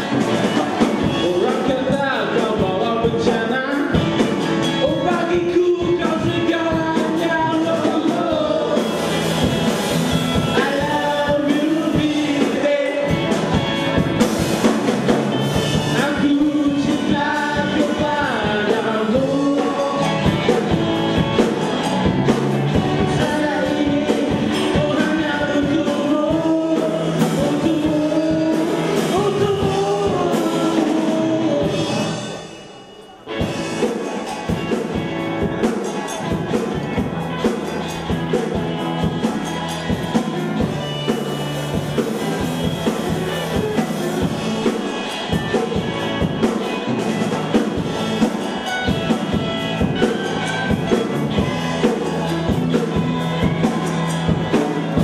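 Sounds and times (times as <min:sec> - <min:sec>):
rock band playing: 0:00.0 - 0:55.0
voices singing: 0:15.0 - 0:32.5.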